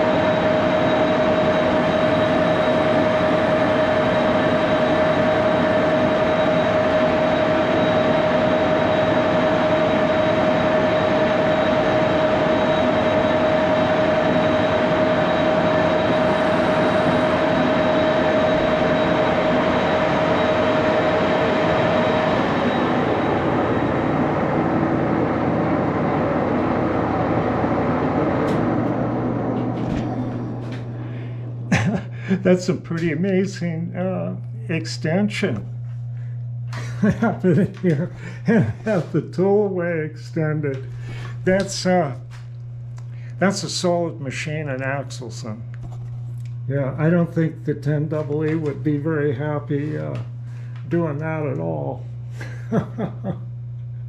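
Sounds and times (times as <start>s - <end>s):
lathe machining steel: 0.0s - 33.7s
sustained tone: 0.0s - 34.5s.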